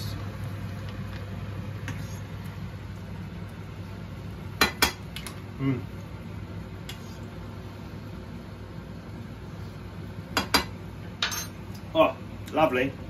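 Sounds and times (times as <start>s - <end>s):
steady low hum: 0.0s - 13.0s
low vocal sound: 5.6s - 5.9s.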